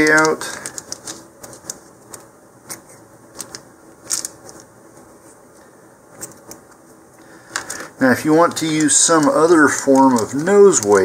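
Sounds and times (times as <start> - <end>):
plastic bag rustling: 0.0 - 1.9, 3.3 - 5.4, 7.4 - 11.0.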